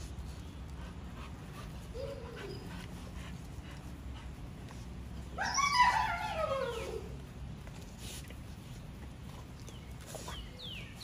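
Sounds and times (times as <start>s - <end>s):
dog whining: 1.9s - 2.8s, 5.4s - 7.2s.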